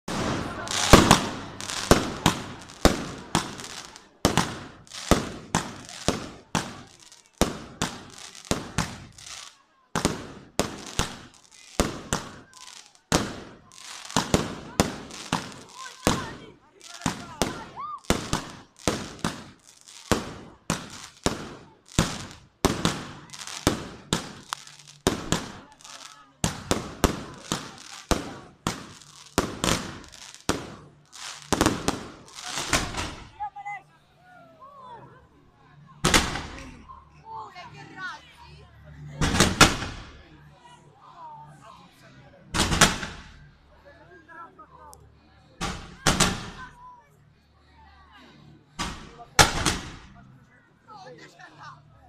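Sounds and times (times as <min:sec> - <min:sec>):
fireworks bangs: 0:00.1 - 0:33.4, 0:36.0 - 0:36.8, 0:39.2 - 0:40.2, 0:42.6 - 0:43.4, 0:45.6 - 0:46.8, 0:48.8 - 0:50.2.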